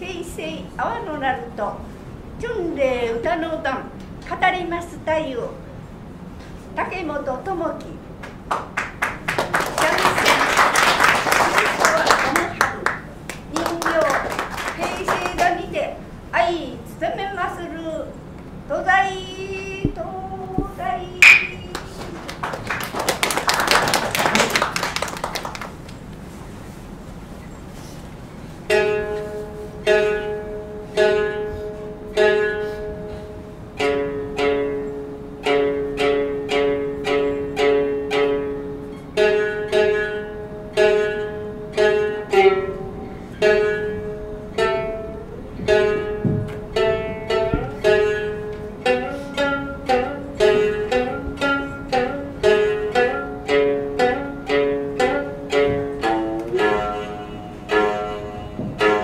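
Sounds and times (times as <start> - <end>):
shamisen plucked notes: 19.8 - 22.0, 28.7 - 59.0.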